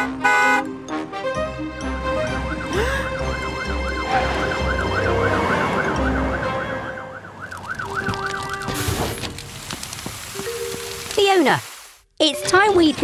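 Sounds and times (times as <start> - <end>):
cartoon fire engine siren warbling: 1.6 - 8.8.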